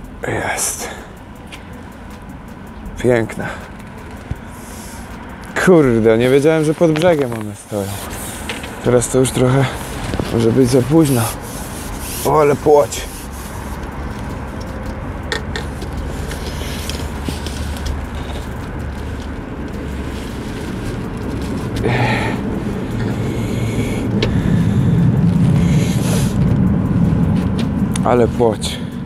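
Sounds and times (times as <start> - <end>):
city road traffic: 0.0 - 29.0
heavy vehicle rumbling: 0.0 - 29.0
handling clicks and scrape: 3.6 - 23.3.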